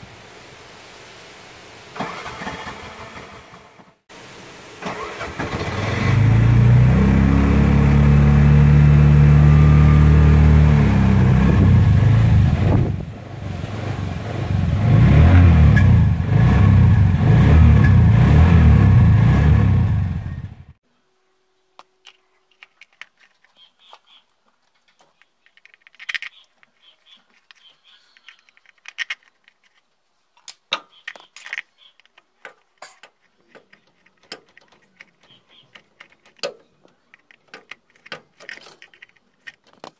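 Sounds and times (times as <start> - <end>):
engine dying: 2.0 - 4.0, 4.8 - 20.8.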